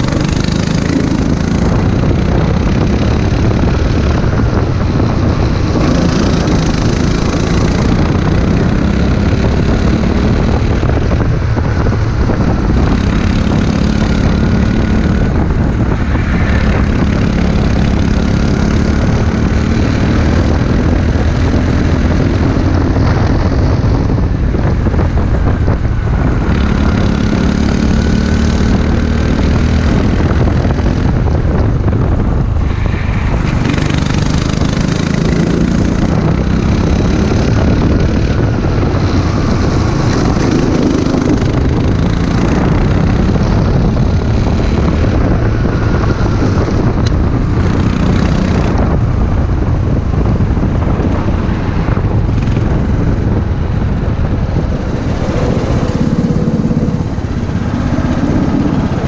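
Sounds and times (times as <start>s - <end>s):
kart engine revving: 0.0s - 4.7s, 5.3s - 10.7s, 26.4s - 30.1s, 33.4s - 45.2s, 52.4s - 59.0s.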